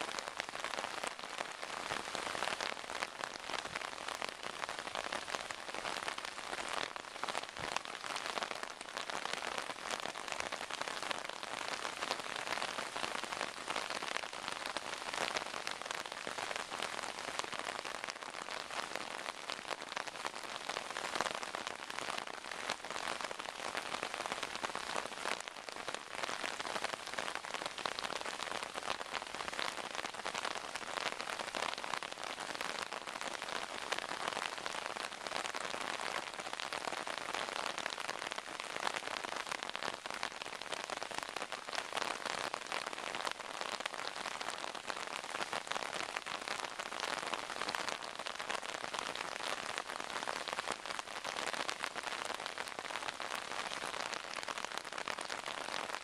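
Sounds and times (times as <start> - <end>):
torrential rain: 0.0 - 56.0.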